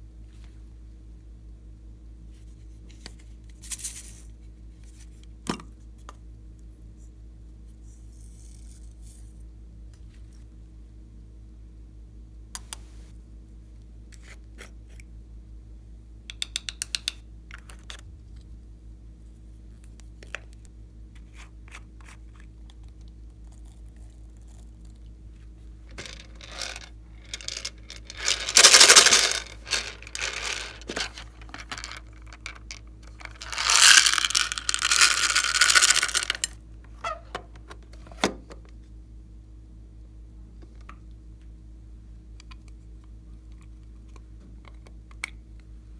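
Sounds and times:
low steady hum: 0.0s - 45.9s
beads and glitter rattling pour: 25.9s - 36.5s
plastic containers clicking: 26.0s - 36.5s.

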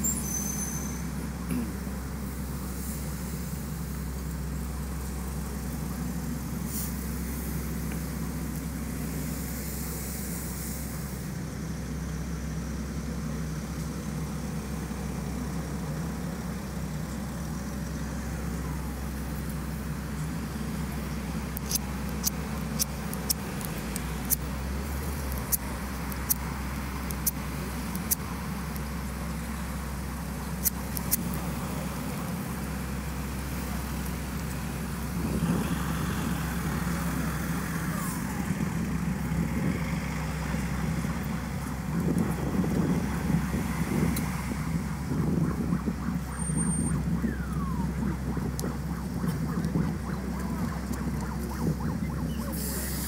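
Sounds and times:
road traffic rumble: 0.0s - 53.0s
sharp ticks: 21.5s - 28.9s, 45.9s - 52.2s.

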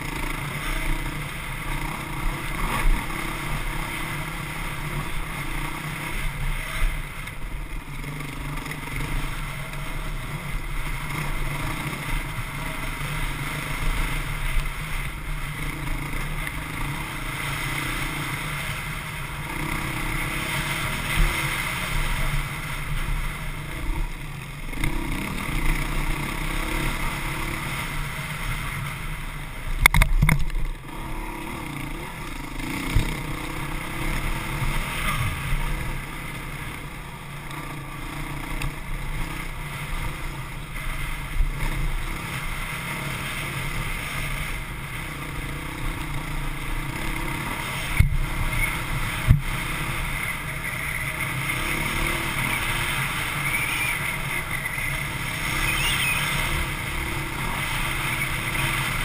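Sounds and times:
dirt bike engine revving: 0.0s - 59.0s.

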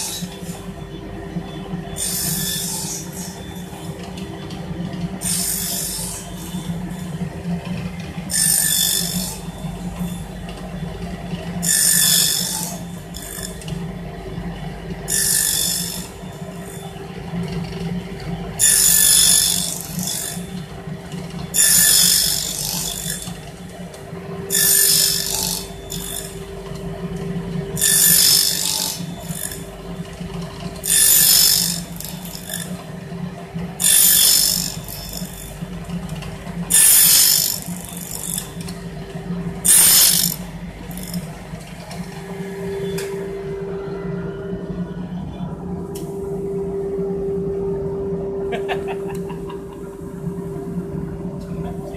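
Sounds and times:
table saw running: 0.0s - 43.6s
saw blade cutting wood: 5.2s - 6.2s, 15.1s - 16.1s, 21.6s - 23.3s, 24.5s - 26.3s, 27.8s - 29.6s, 30.8s - 32.7s, 33.8s - 35.4s, 36.7s - 38.5s, 39.6s - 41.2s.

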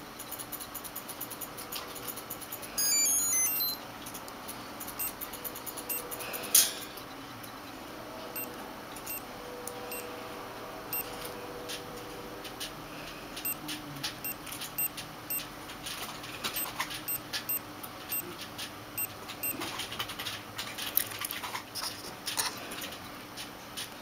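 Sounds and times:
short high beeps: 2.8s - 3.8s, 16.6s - 18.3s.

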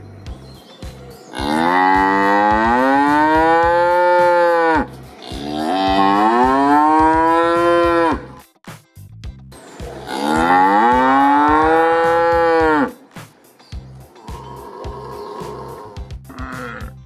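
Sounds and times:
cow mooing: 1.3s - 8.4s, 10.0s - 13.0s, 14.3s - 17.0s.

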